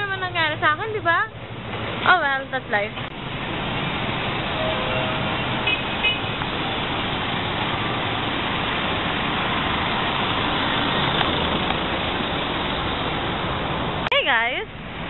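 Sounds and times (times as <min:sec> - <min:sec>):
cars and vans driving past: 0:00.0 - 0:15.0.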